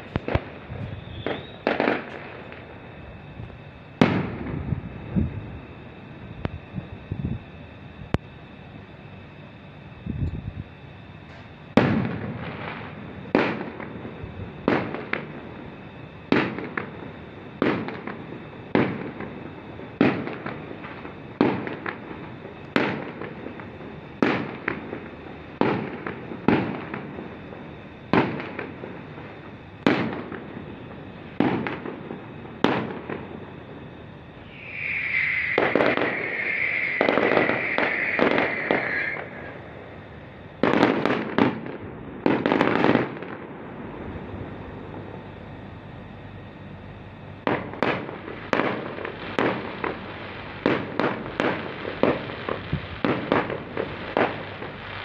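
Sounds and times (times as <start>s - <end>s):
fireworks bangs: 0.0s - 2.7s, 4.0s - 4.7s, 34.4s - 40.0s, 40.6s - 43.4s, 47.4s - 55.0s
dense fireworks crackling: 0.0s - 7.4s, 11.7s - 45.5s, 47.4s - 55.0s.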